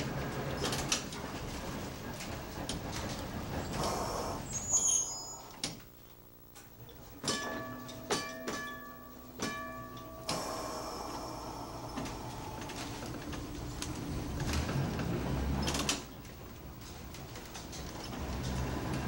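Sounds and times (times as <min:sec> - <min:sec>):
streetcar clicks and clunks: 0:00.0 - 0:04.9, 0:06.8 - 0:19.0
streetcar running rumble: 0:00.0 - 0:05.4, 0:10.4 - 0:19.0.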